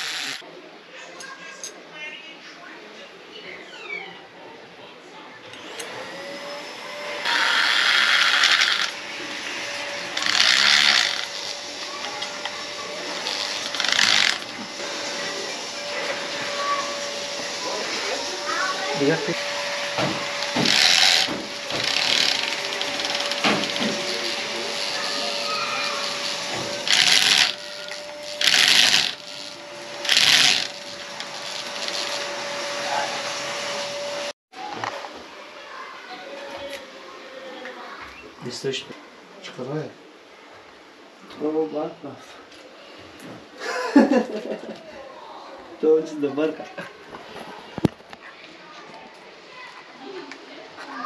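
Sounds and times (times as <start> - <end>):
power drill boring: 0.0 - 0.4, 5.6 - 34.3.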